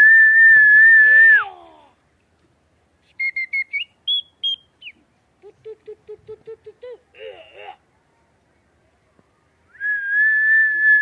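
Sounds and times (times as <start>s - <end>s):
short chirps rising in pitch: 3.1s - 5.0s.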